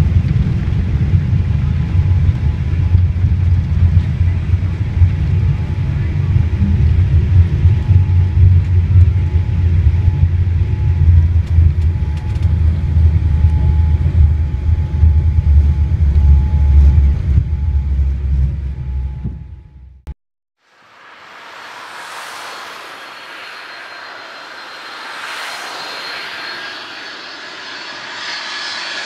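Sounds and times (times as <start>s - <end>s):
aircraft cabin low rumble: 0.0s - 20.2s
faint steady whine: 0.0s - 29.0s.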